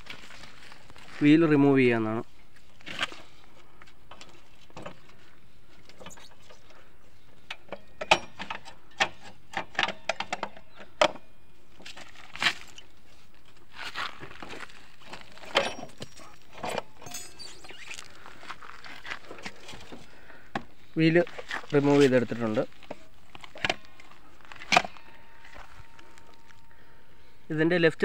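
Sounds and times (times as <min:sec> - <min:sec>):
metallic clicks and clunks: 0:07.4 - 0:11.3.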